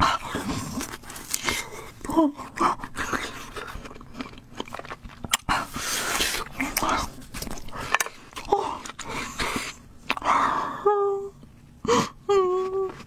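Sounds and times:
person chewing food: 0.0 - 10.5
woman humming: 10.5 - 13.0.

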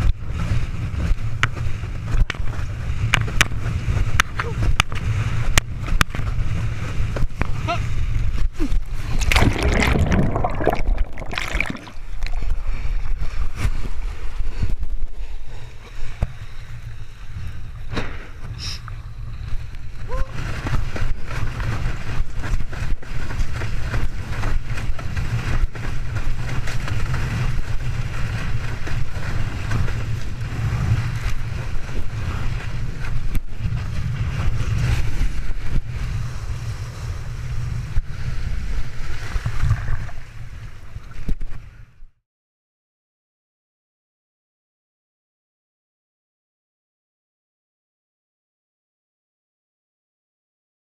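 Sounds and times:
wind buffeting microphone: 0.0 - 41.8
rushing water: 8.6 - 14.2
board knocking on water: 9.2 - 12.4.

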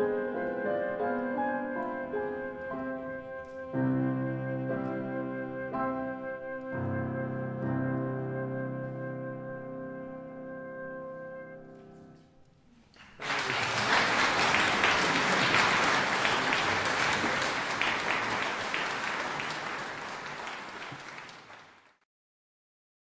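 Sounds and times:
flute cello and piano chord: 0.0 - 12.2
audience applause: 12.9 - 22.0.

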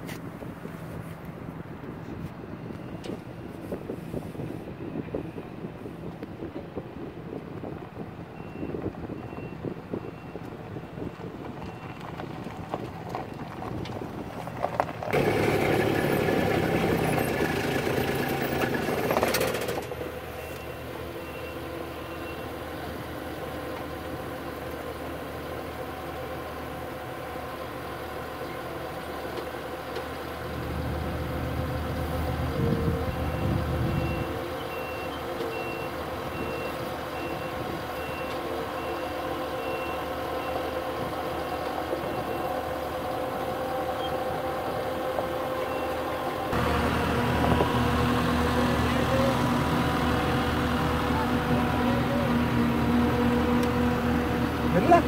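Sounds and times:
heavy equipment engines running: 0.0 - 55.0
reversing alarm beeping: 20.3 - 22.6, 32.9 - 46.4.

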